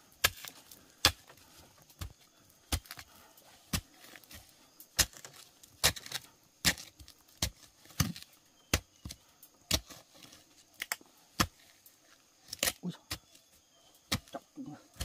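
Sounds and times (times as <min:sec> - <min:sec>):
digging tool chopping into earth: 0:00.2 - 0:01.4, 0:02.0 - 0:03.1, 0:03.7 - 0:10.0, 0:10.8 - 0:11.7, 0:12.5 - 0:15.0.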